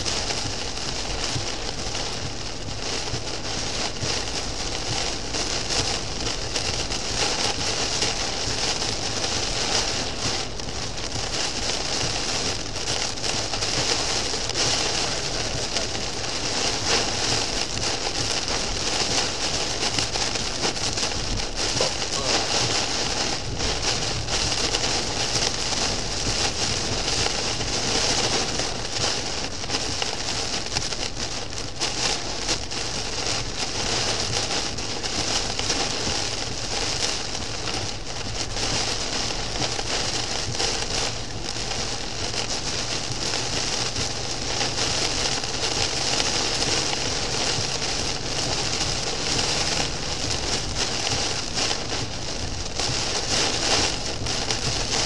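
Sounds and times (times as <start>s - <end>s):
heavy rain on car roof: 0.0s - 55.0s.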